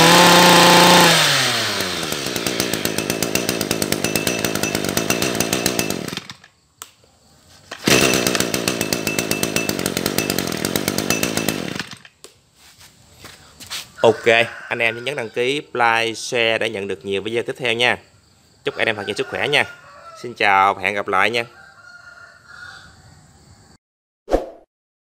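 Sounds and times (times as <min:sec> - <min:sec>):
two-stroke engine revving and idling: 0:00.0 - 0:06.4, 0:07.7 - 0:12.0.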